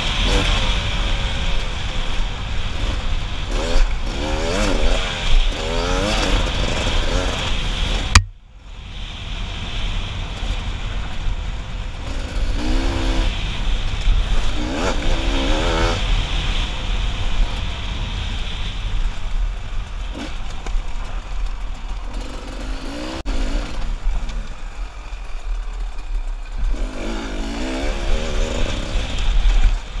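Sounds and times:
dirt bike engine revving: 0:00.0 - 0:08.3, 0:12.0 - 0:17.1, 0:22.0 - 0:24.5, 0:26.5 - 0:29.6.

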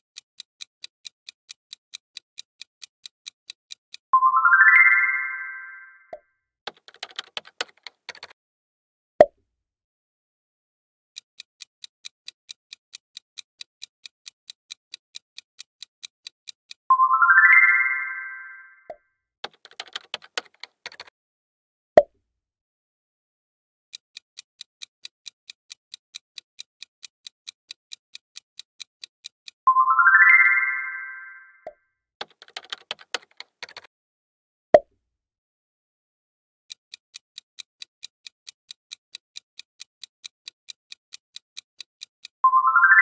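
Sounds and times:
countdown timer ticking: 0:02.4 - 0:06.2, 0:16.0 - 0:19.0, 0:27.7 - 0:31.7, 0:39.1 - 0:43.0
bright rising chime: 0:04.2 - 0:06.1, 0:17.0 - 0:18.8, 0:29.7 - 0:31.6, 0:42.5 - 0:43.0
clattering typing effect: 0:06.7 - 0:08.4, 0:19.4 - 0:21.1, 0:32.2 - 0:33.9.

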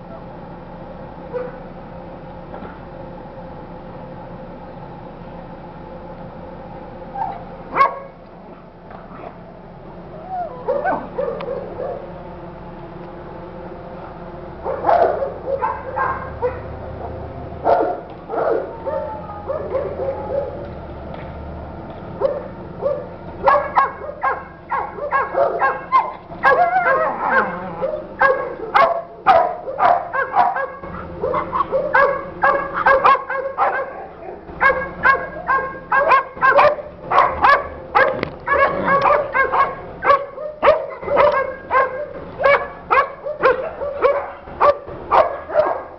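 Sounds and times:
dog barking and yapping: 0:01.3 - 0:01.7, 0:07.2 - 0:08.2, 0:10.3 - 0:12.1, 0:14.6 - 0:20.6, 0:22.2 - 0:45.9.

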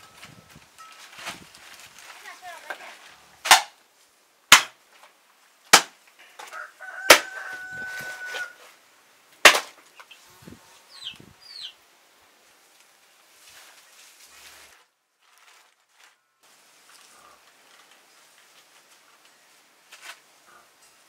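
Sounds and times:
rooster crowing: 0:06.4 - 0:08.7.

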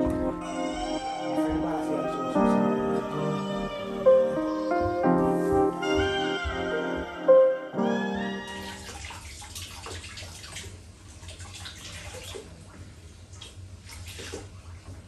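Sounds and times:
water running in sink: 0:08.4 - 0:12.5
water splashing: 0:08.4 - 0:15.0.

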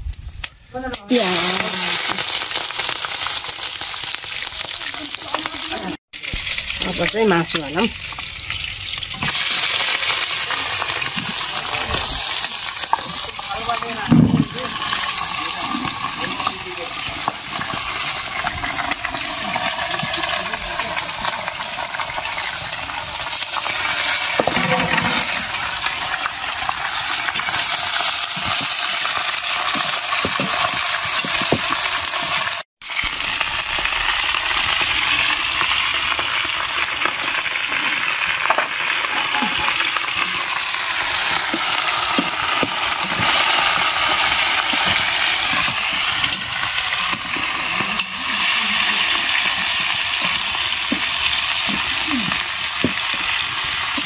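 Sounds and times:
meat sizzling in hot oil: 0:00.0 - 0:54.0
metal spatula scraping a pan: 0:23.2 - 0:26.0.

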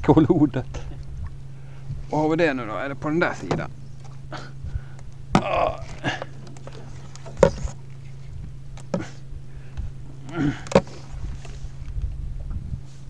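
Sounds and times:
steady low hum: 0:00.0 - 0:13.0
sharp handling knocks: 0:03.4 - 0:03.7
grunt-like vocal noise: 0:05.4 - 0:06.3, 0:10.2 - 0:10.7.

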